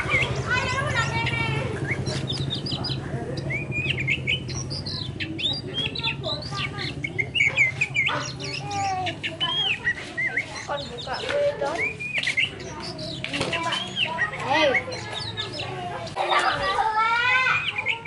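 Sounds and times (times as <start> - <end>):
bird singing whistles and chirps: 0.0 - 15.8.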